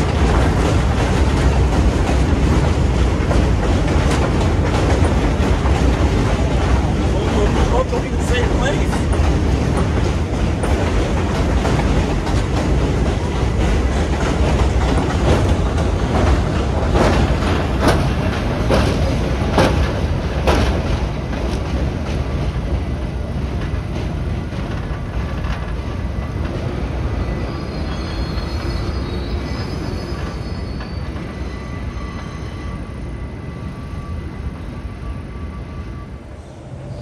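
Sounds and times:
wheels clacking over rail joints: 0:00.0 - 0:32.3
subway train rumbling on rails: 0:00.0 - 0:37.0
faint high wheel squeal: 0:27.2 - 0:37.0.

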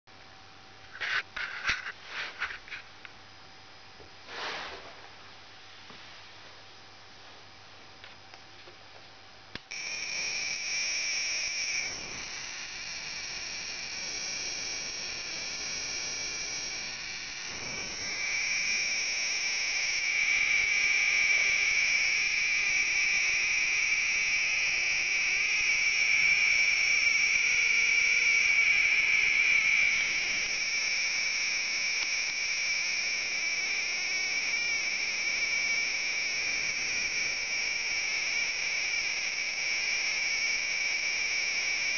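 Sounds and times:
high-pitched electronic whine: 0:09.6 - 0:41.9.

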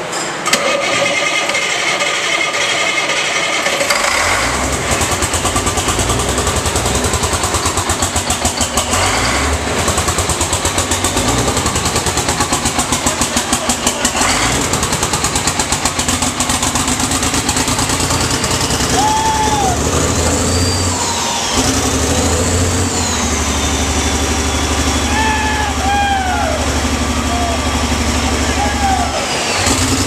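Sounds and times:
diesel engine running: 0:00.6 - 0:30.0
high whistles: 0:18.4 - 0:26.6.

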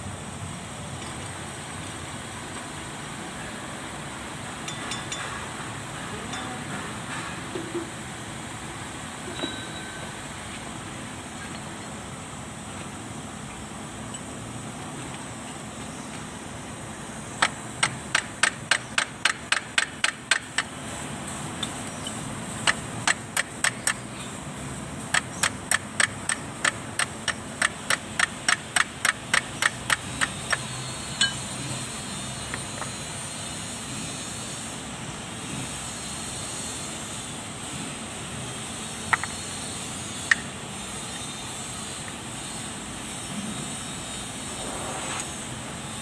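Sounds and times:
sharp metallic clicks: 0:25.1 - 0:31.4.

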